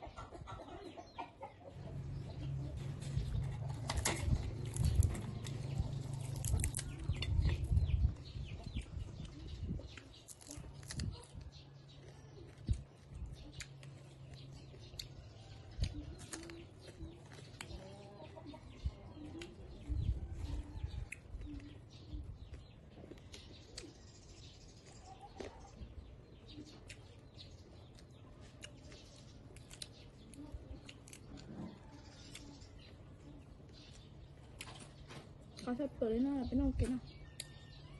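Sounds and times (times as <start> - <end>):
chicken clucking: 0.0 - 23.9, 24.7 - 35.3
chewing mouth clicks and smacks: 8.6 - 17.9, 20.9 - 24.0, 26.5 - 32.9.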